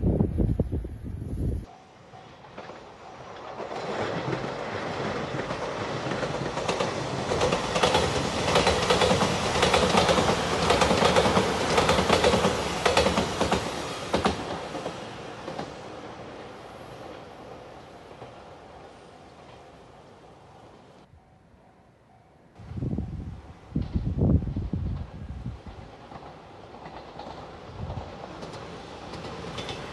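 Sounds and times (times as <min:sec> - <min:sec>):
electric train passing: 0:00.0 - 0:21.1, 0:22.6 - 0:29.9
train wheels clacking over rail joints: 0:02.0 - 0:15.8, 0:24.8 - 0:29.9.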